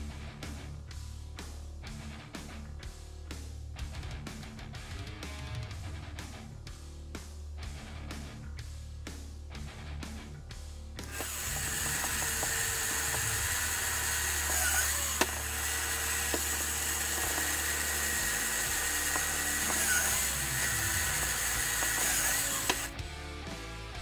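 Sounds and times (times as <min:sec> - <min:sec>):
sharp click: 0:11.0 - 0:18.4, 0:19.0 - 0:22.9
drill press drilling leather: 0:11.0 - 0:22.9.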